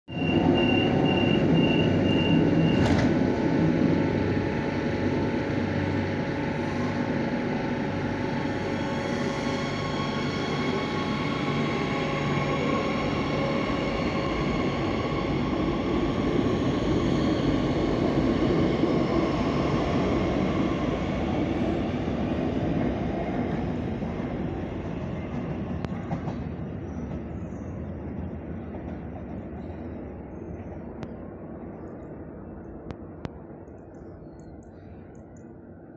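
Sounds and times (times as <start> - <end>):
train doors shutting knock: 2.6 - 3.3.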